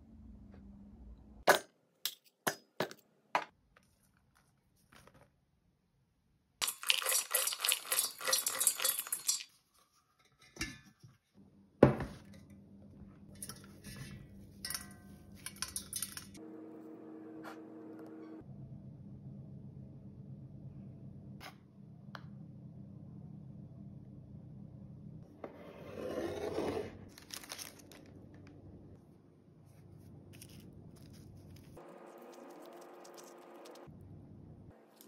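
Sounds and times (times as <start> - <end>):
almonds clattering into bowl: 6.6 - 9.5.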